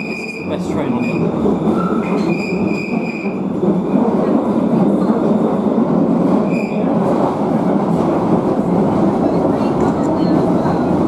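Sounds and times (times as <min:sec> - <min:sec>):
train wheels rumbling on track: 0:00.0 - 0:11.0
high wheel squeal: 0:01.8 - 0:03.4.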